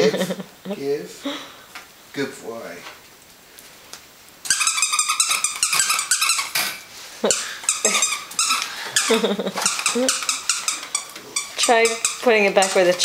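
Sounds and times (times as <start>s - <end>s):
puppy yapping and barking: 4.5s - 6.6s.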